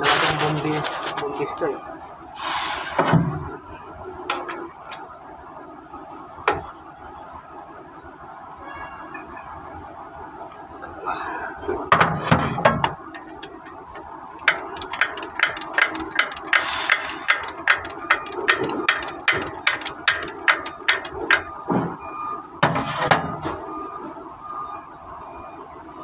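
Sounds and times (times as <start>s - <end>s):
ratchet wrench clicking: 14.4s - 21.4s.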